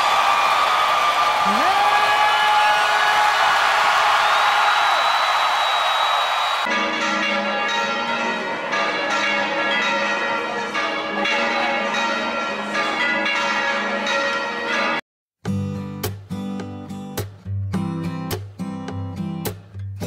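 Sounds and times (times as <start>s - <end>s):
church bells ringing: 6.8s - 15.0s.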